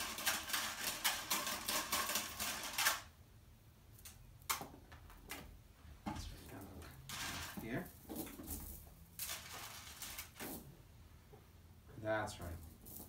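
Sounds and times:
beads rattling and clicking: 0.0 - 3.1, 7.1 - 10.6.

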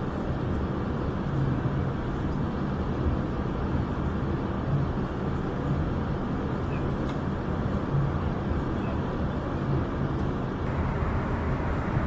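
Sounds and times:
airliner cabin drone: 0.0 - 12.0.

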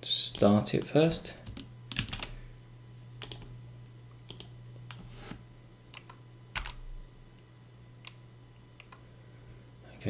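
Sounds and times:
low steady hum: 0.0 - 10.0
keyboard keystrokes: 3.2 - 3.5, 4.3 - 4.5, 5.9 - 6.8.

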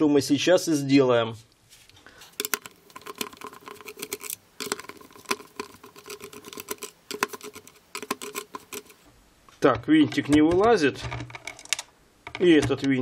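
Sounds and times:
plastic creaking: 2.4 - 9.0, 9.6 - 13.0.

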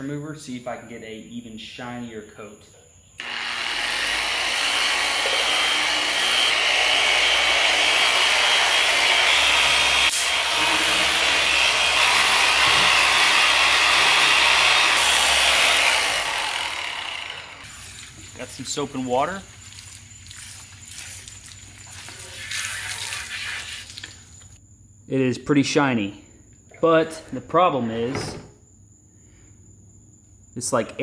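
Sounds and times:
polisher whirring on paint: 3.2 - 17.7.

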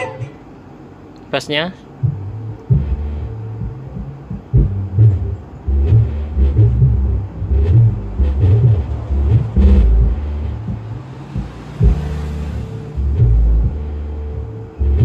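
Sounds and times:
loud music with deep bass beats: 2.0 - 15.0.

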